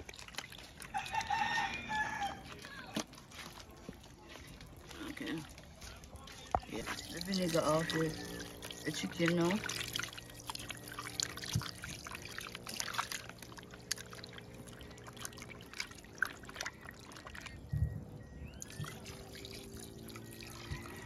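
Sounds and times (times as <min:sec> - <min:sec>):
water pouring and splashing: 0:00.0 - 0:21.0.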